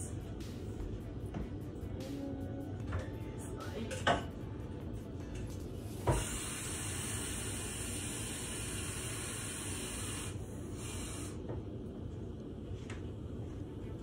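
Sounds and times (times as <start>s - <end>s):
running water hissing: 5.9s - 11.4s
tap turned on with a knock: 6.0s - 6.3s.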